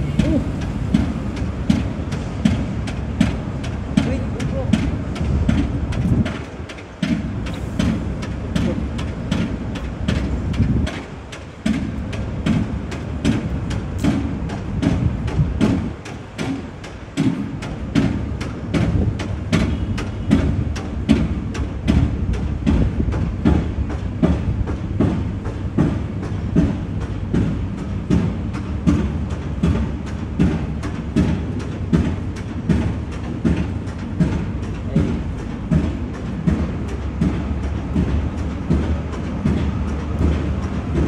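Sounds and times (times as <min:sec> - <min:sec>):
footsteps on pavement: 0:00.0 - 0:41.0.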